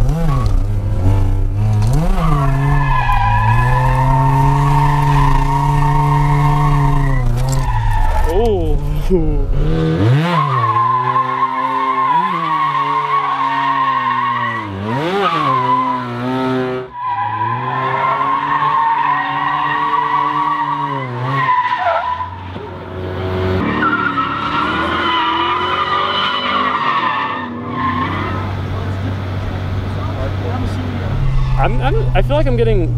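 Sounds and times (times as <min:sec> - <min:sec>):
car engines revving: 0:00.0 - 0:32.9
tyre screech: 0:01.8 - 0:09.2, 0:23.6 - 0:28.5, 0:31.0 - 0:32.2.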